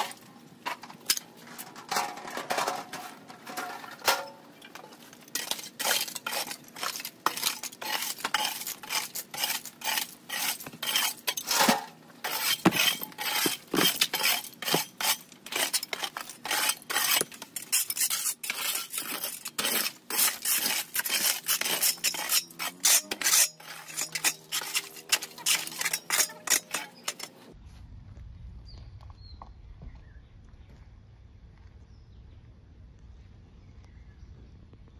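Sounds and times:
shards clinking and rattling: 0:00.0 - 0:27.5
garden tool scraping dirt: 0:04.8 - 0:27.6.

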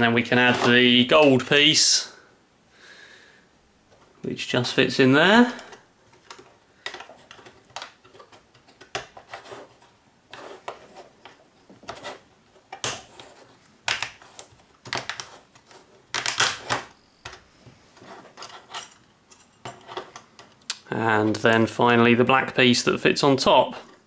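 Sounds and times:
plastic parts clicking together: 0:05.6 - 0:09.4, 0:13.9 - 0:17.4.

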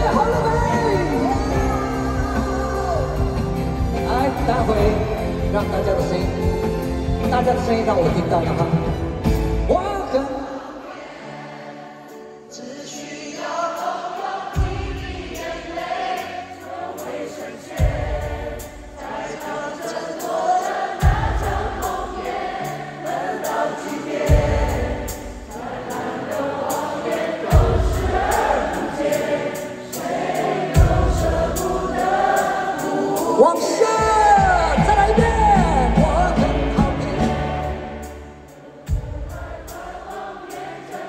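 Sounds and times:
person singing: 0:00.0 - 0:06.5, 0:25.5 - 0:38.2
live pop song by band: 0:00.0 - 0:10.9, 0:11.6 - 0:41.0.

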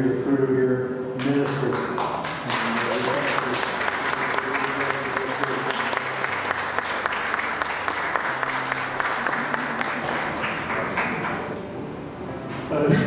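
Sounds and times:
crowd applauding: 0:01.2 - 0:11.6.

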